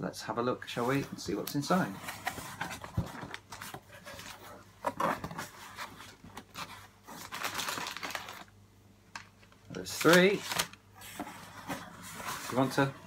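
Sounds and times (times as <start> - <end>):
cardboard box rustling: 0.8 - 8.4, 10.1 - 12.9.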